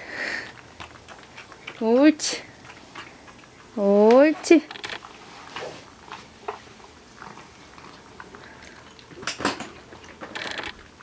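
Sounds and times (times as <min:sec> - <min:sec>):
pets crunching dry kibble: 0:00.0 - 0:11.0
bowl clattering: 0:08.4 - 0:10.4.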